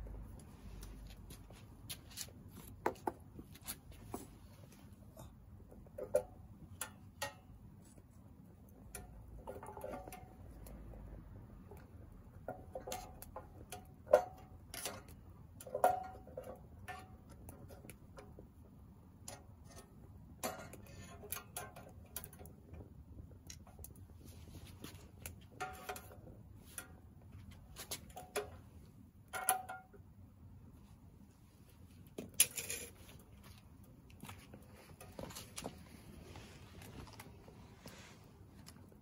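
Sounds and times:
firewood crackling and popping: 5.8s - 29.6s.

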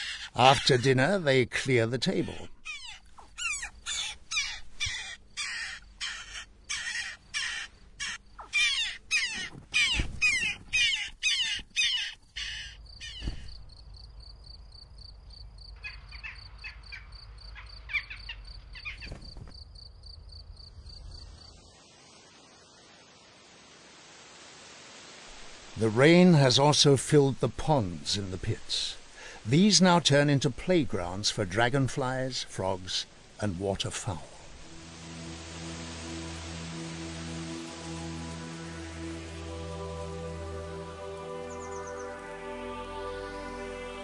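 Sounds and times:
jackdaws calling: 0.0s - 14.3s, 15.0s - 19.6s.

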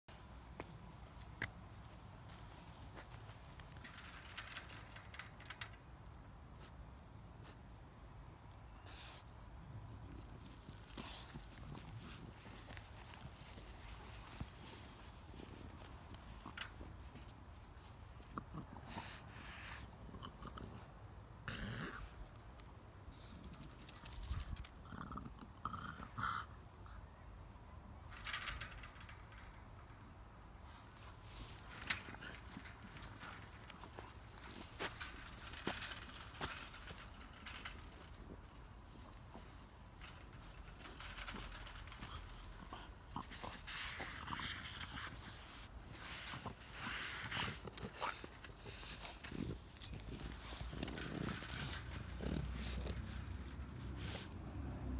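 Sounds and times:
dog sniffing and breathing: 41.4s - 54.9s.

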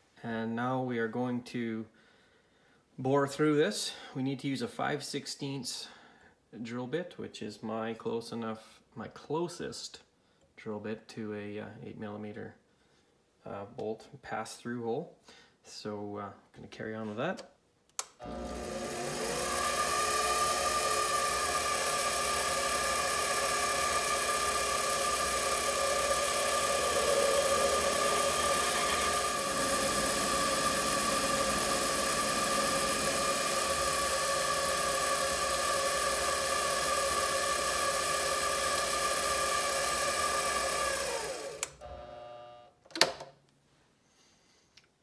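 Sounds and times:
lathe motor whine: 18.2s - 42.5s.

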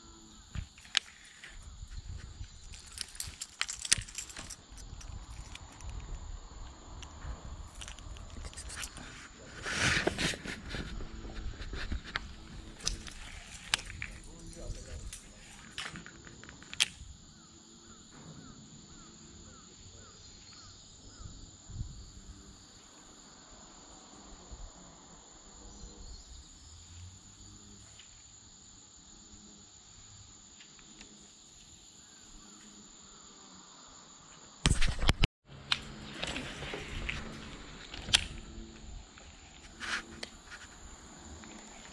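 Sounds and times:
insects trilling: 0.0s - 41.9s
rustling: 0.7s - 6.1s, 7.6s - 16.9s.

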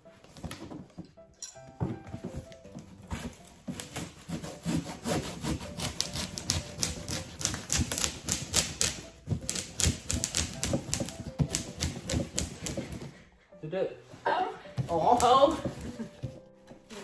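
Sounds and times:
knife cutting cardboard: 3.0s - 13.1s.

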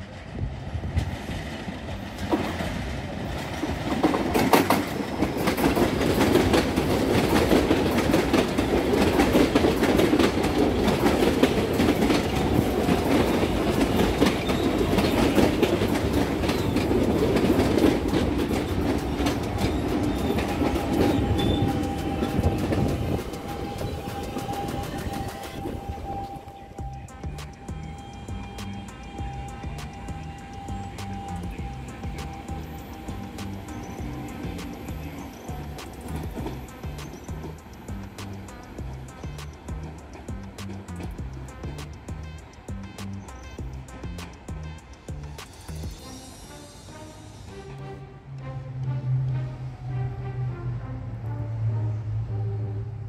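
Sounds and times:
train wheels clacking on rails: 0.0s - 46.6s.

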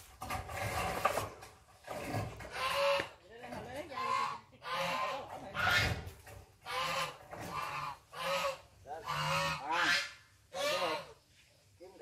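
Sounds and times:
geese honking: 3.9s - 6.0s, 6.6s - 11.1s.

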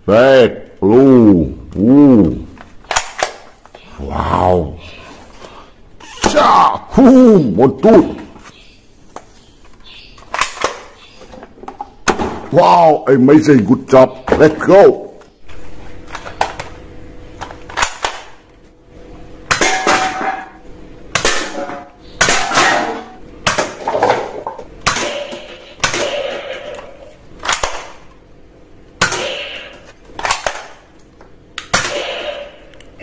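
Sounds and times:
darts hitting cups and cans: 9.2s - 12.5s, 19.5s - 28.1s, 29.0s - 32.7s.

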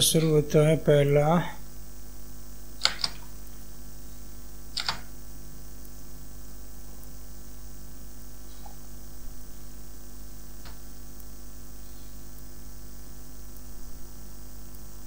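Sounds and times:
electrical hum with hiss: 0.0s - 15.0s
computer mouse clicks: 2.8s - 3.3s, 4.7s - 5.1s.

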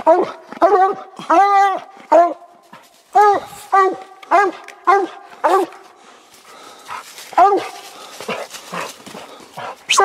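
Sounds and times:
dog barking: 3.2s - 5.7s.

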